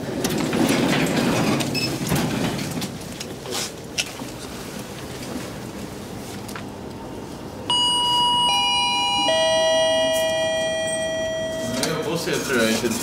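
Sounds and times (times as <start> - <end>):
descending chime tones: 7.7 - 12.7.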